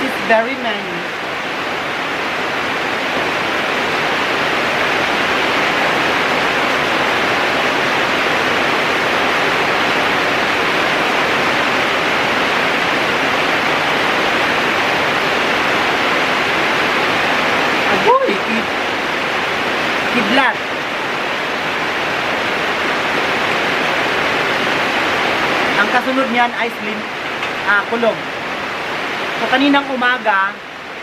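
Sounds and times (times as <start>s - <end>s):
heavy rain: 0.0s - 31.0s.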